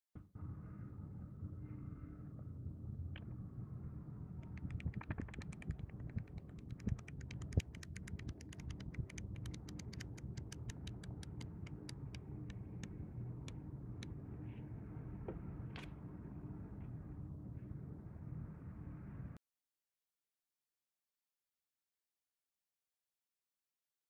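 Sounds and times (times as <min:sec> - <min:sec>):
flipbook pages flicking: 0:04.4 - 0:12.6.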